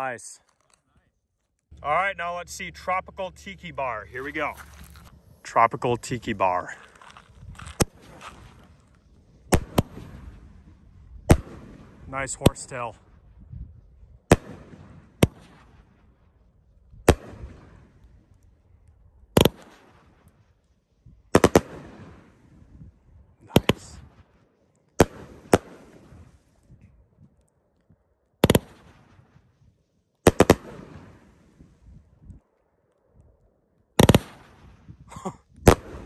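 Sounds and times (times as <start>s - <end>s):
fireworks bangs: 1.7s - 12.9s, 34.0s - 35.0s, 35.6s - 36.0s.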